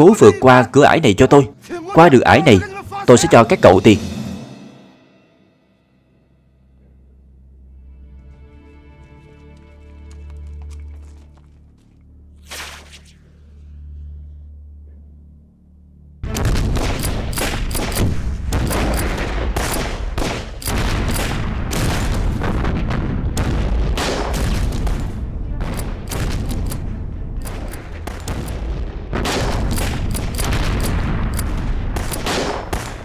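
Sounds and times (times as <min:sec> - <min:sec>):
explosions: 0:16.3 - 0:26.6
gunfire: 0:16.3 - 0:33.0.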